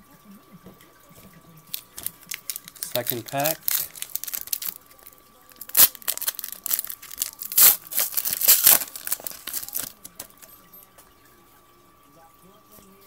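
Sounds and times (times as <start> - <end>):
foil wrapper tearing and crinkling: 1.7 - 10.4.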